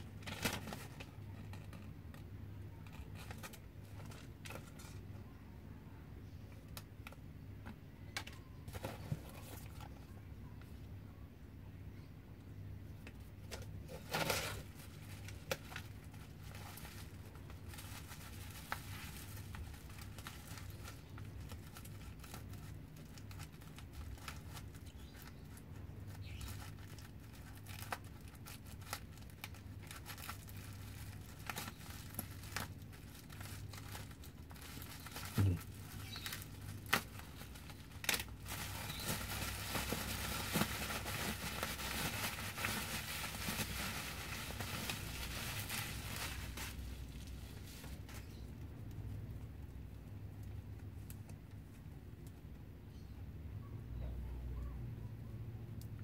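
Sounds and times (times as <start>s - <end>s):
bubble wrap crinkling: 0.0s - 2.2s, 13.0s - 48.6s.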